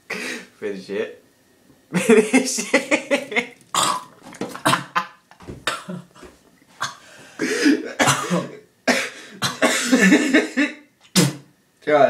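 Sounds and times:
person coughing and spluttering: 3.0 - 11.5.

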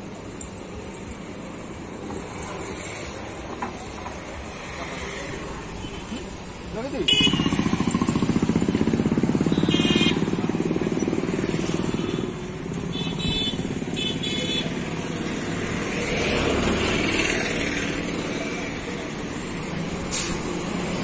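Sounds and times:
road traffic: 0.0 - 21.0
motorcycle engine: 7.1 - 19.2.

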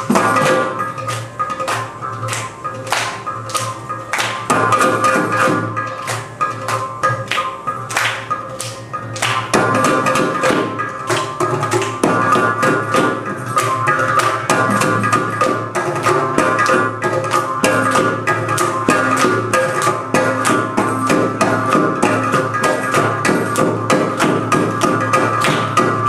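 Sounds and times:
drum and clay-pot strokes: 0.0 - 0.9.

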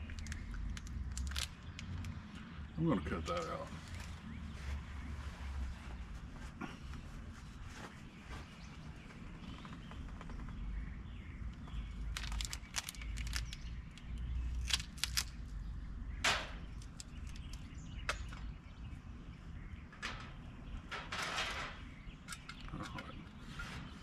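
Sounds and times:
items handled on metal table: 20.0 - 24.0.

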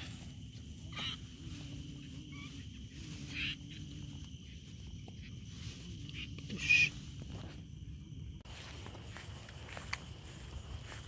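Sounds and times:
insects chirping at night: 0.0 - 11.0
short high squeaky calls: 6.2 - 7.0.

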